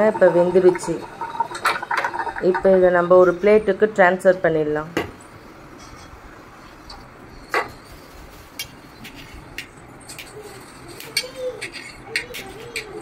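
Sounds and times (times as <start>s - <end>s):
steel kitchenware clinking: 5.8s - 6.2s, 8.9s - 13.0s.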